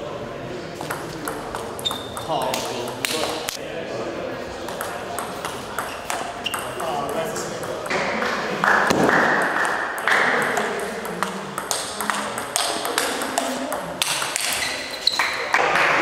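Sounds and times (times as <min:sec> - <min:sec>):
ball bouncing on table: 0:00.8 - 0:03.4, 0:04.7 - 0:14.7
ball clicking off table tennis bats: 0:08.9 - 0:14.8.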